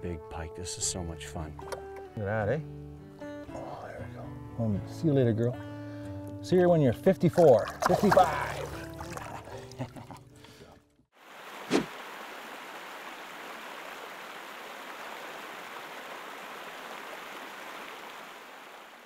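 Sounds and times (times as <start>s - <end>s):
loud thump: 11.7s - 11.9s.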